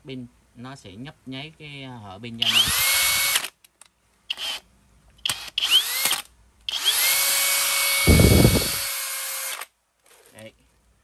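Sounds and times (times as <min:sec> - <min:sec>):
cordless drill whining: 0:02.4 - 0:03.5, 0:04.3 - 0:04.6, 0:05.2 - 0:09.7.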